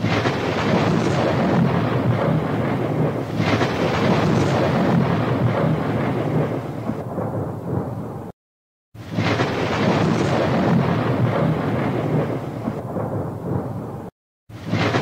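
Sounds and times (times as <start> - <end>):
rumble of tower collapsing: 9.0 - 15.0.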